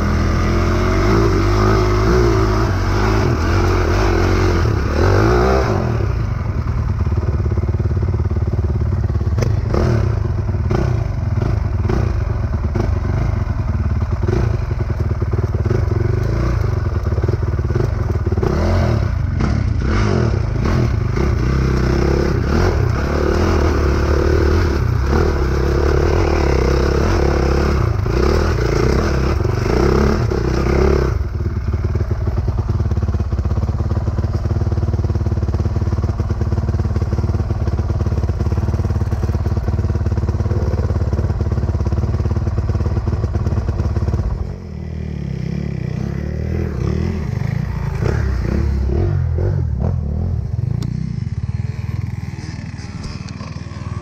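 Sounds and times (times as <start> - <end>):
other dirt bikes revving: 0.0 - 6.3, 17.7 - 31.3, 44.9 - 54.0
dirt bike engine pulling hard: 0.0 - 54.0.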